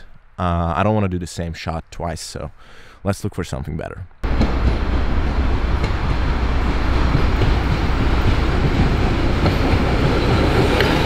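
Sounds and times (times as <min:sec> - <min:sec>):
diesel locomotive engine drone: 0:04.2 - 0:11.0
wheels rumbling on rails: 0:04.2 - 0:11.0.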